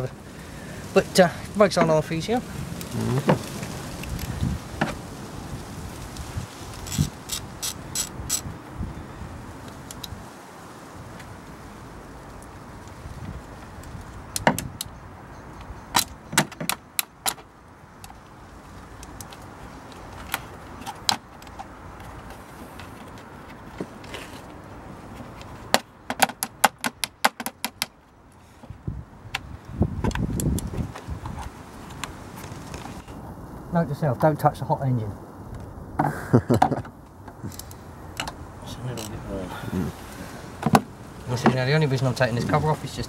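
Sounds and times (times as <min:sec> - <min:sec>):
muffled rumble of cover handled: 0:02.8 - 0:05.0, 0:19.2 - 0:26.6, 0:30.0 - 0:33.2
ratchet clicks: 0:06.9 - 0:08.5.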